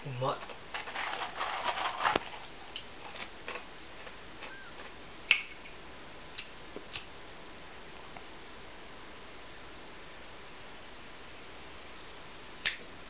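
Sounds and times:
snack packaging rustling: 0.3 - 5.0.

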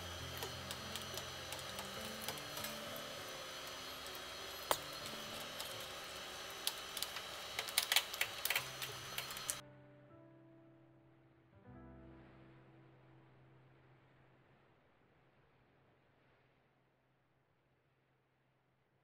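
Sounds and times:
soft background music: 0.0 - 14.6.

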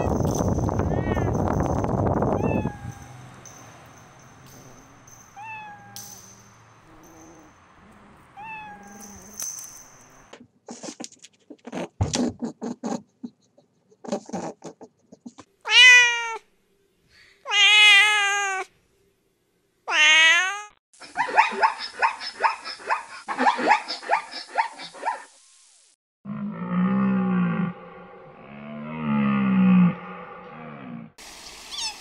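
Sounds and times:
kitten meowing: 2.4 - 3.2, 5.4 - 6.0, 8.4 - 9.0, 15.7 - 16.4, 17.5 - 18.7, 19.9 - 20.8.

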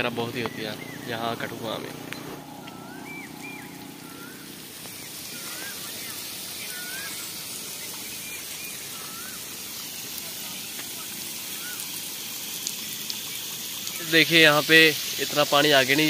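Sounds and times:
water spraying from pipe: 0.0 - 16.0
bird whistling calls: 0.4 - 1.2, 2.1 - 9.8, 11.4 - 12.0.

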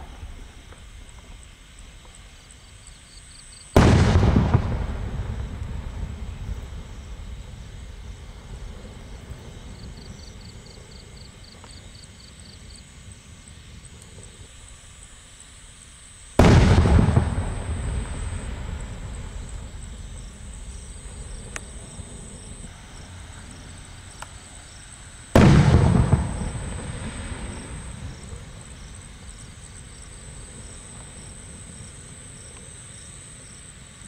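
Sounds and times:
firework shells booming: 3.7 - 8.8, 16.4 - 22.7, 25.4 - 29.5
rolling echo: 3.8 - 8.8, 16.4 - 22.7, 25.4 - 29.4.

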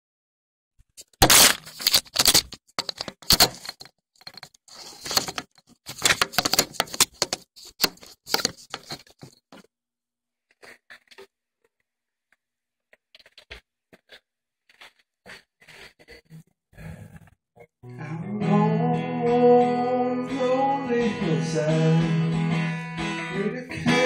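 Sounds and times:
phone handling crackling and rubbing: 1.0 - 9.7.

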